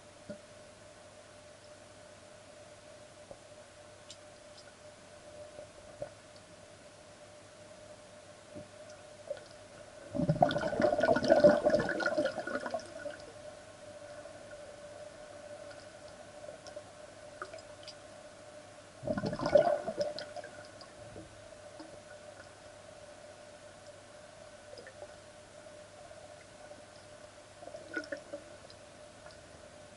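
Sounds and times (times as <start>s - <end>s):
underwater hum: 0.1s - 29.9s
air bubbling underwater: 19.0s - 20.2s.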